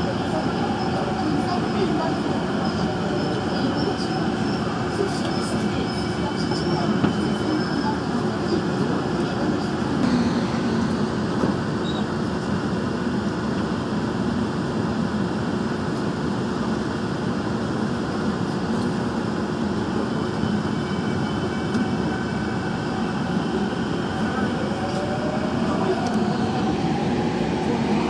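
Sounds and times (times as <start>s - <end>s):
subway train running in tunnel: 0.0s - 28.0s.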